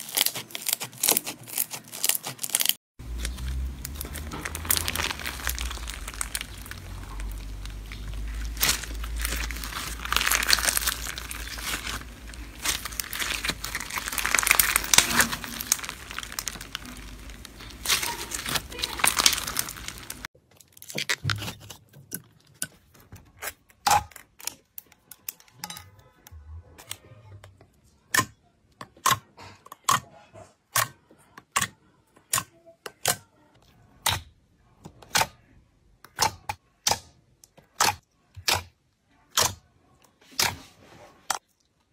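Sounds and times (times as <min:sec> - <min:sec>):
foam slime crackling: 0:00.0 - 0:21.7.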